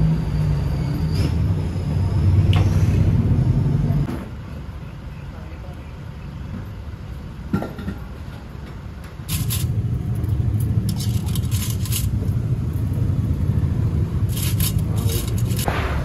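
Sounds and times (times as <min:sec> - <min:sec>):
wire hooks clinking on metal pot: 0:09.3 - 0:12.9, 0:14.3 - 0:15.7.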